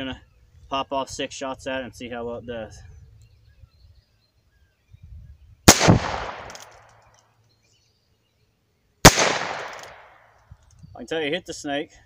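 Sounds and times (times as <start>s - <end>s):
revolver gunshots: 5.7s - 6.9s, 9.0s - 10.3s.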